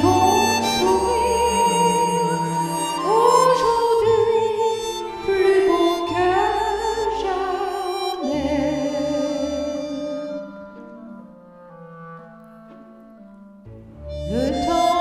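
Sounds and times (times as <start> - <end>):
woman singing with vibrato: 0.0 - 10.5, 14.3 - 15.0.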